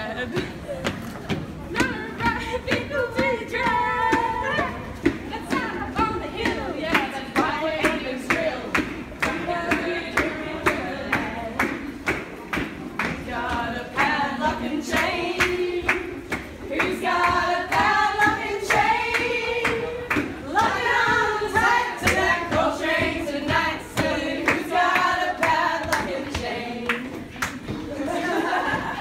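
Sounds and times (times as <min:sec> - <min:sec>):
group singing: 0:01.7 - 0:29.0
hand claps: 0:06.9 - 0:13.2.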